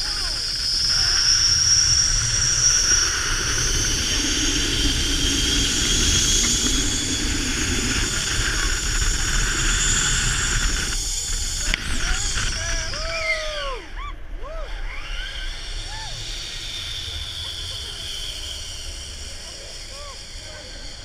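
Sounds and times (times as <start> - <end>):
wind rumble on microphone: 0.0 - 13.8
zip-line pulleys whining on cable: 0.0 - 21.0.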